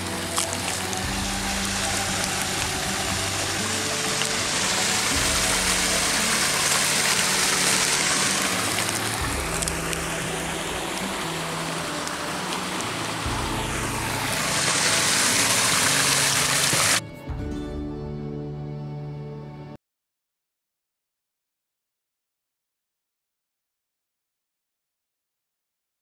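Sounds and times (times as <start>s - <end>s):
running water: 0.0s - 17.0s
soft background music: 0.0s - 19.8s.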